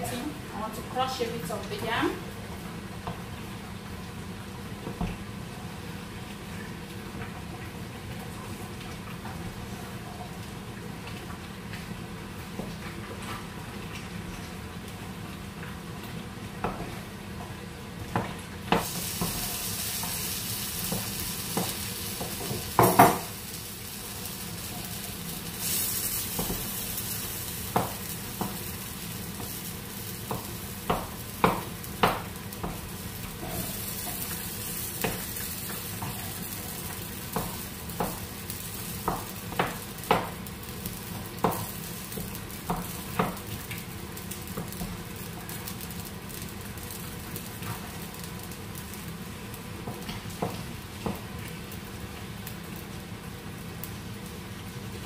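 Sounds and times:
soft hiss from cooking pot: 18.7 - 55.0.

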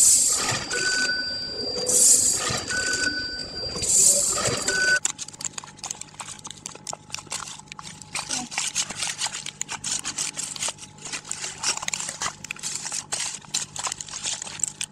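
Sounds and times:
plastic pouch crinkling: 5.0 - 14.9.

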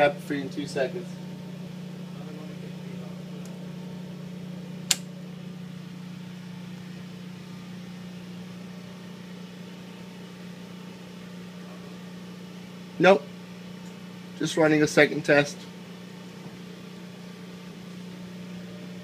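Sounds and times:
low mechanical hum: 0.0 - 19.0
sharp click: 4.9 - 5.1.

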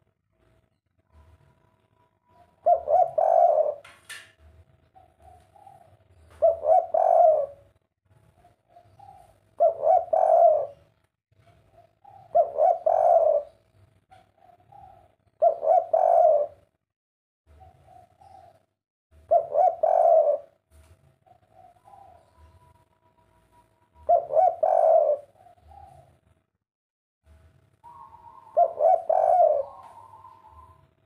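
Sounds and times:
dove cooing: 1.1 - 4.0, 4.8 - 16.7, 17.5 - 20.6, 21.2 - 26.2, 27.8 - 31.0.

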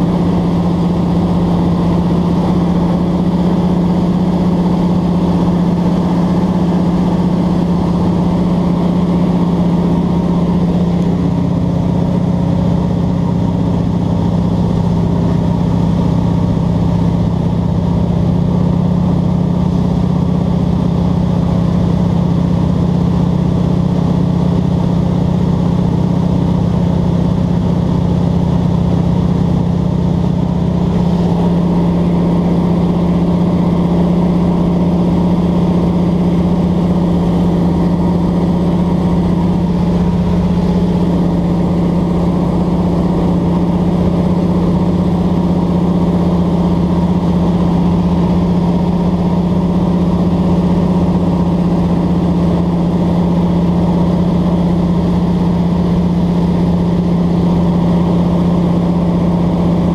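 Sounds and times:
propeller plane engine droning: 0.0 - 59.9.

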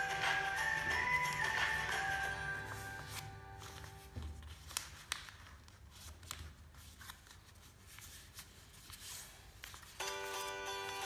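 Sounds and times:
paper rustling while folded: 2.6 - 11.0.

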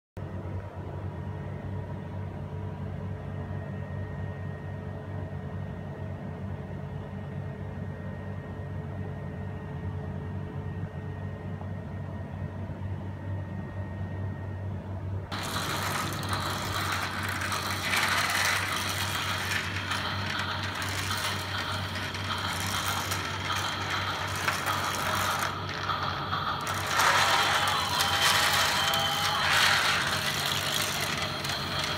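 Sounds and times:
toy train low hum: 14.9 - 31.9
plastic gears rattling: 15.3 - 31.9.

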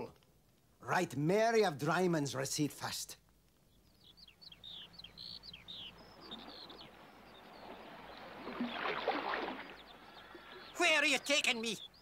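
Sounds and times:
bird chirping: 3.5 - 12.0.

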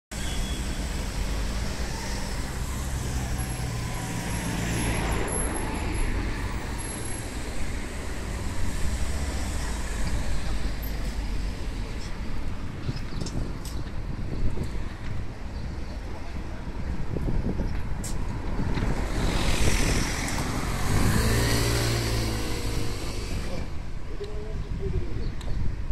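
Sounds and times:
car engine hum and road noise: 16.7 - 24.8.

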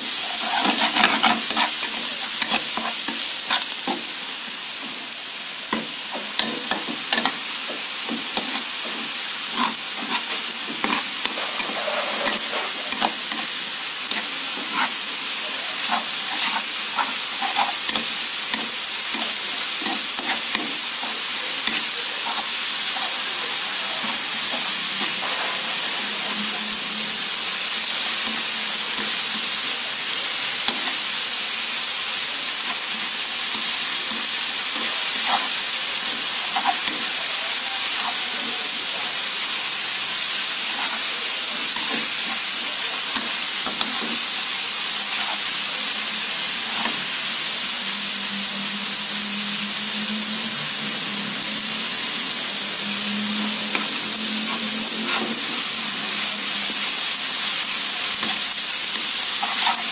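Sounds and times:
aromatics sizzling in hot oil: 0.0 - 59.9
metal spatula scraping a pan: 0.3 - 4.1, 5.7 - 31.1, 34.2 - 38.4, 45.1 - 45.5, 52.8 - 55.9.

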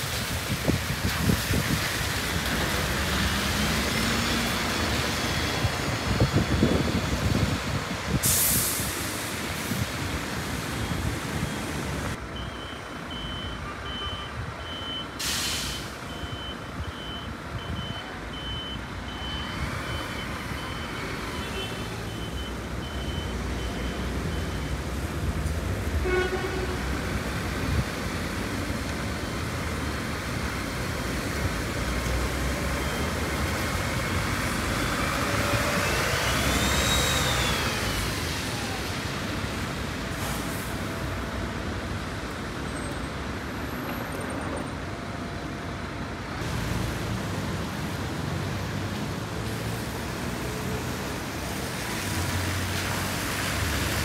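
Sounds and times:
street traffic: 0.0 - 54.0
air brake hiss: 8.2 - 9.8, 15.2 - 16.1
high beeps: 12.4 - 15.2, 16.1 - 21.2, 22.0 - 24.8.

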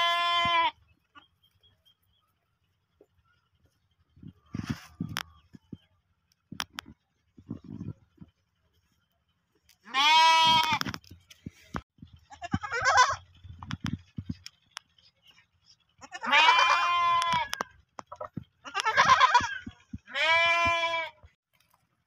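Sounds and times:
goat kid bleating: 0.0 - 0.8, 9.8 - 10.9, 12.3 - 13.3, 16.0 - 17.7, 18.6 - 21.2.

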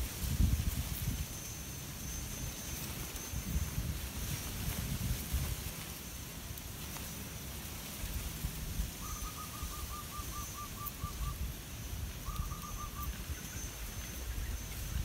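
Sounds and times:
wind rumble on microphone: 0.0 - 15.0
bird calling: 9.0 - 11.5, 12.2 - 15.0.

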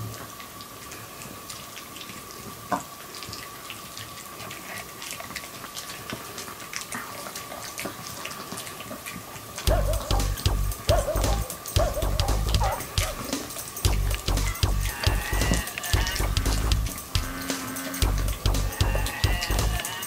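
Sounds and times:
dogs gnawing chew stick: 3.1 - 10.3
background music: 9.7 - 20.0.

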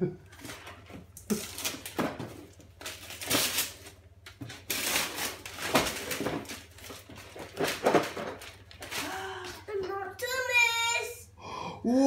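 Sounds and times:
wrapping paper tearing: 0.4 - 9.4.

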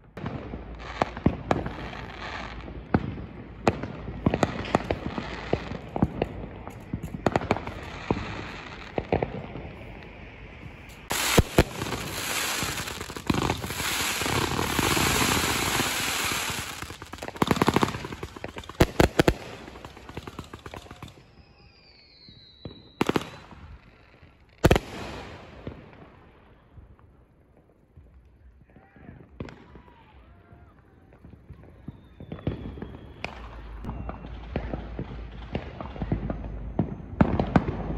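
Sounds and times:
firework booms: 0.0 - 21.3, 30.6 - 37.9
fireworks crackling pops: 0.0 - 26.2, 27.5 - 37.9
fireworks bangs: 0.0 - 27.0, 27.6 - 37.9
crackling hiss of sparks: 9.8 - 22.6
firework whistle falling in pitch: 11.1 - 16.9, 20.6 - 23.1, 31.5 - 35.2.

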